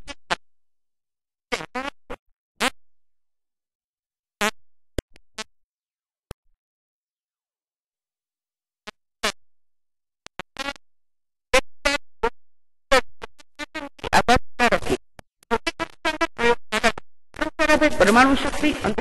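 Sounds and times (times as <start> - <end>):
glitchy fragmented woman's voice: 14.0 - 15.0, 17.4 - 19.0.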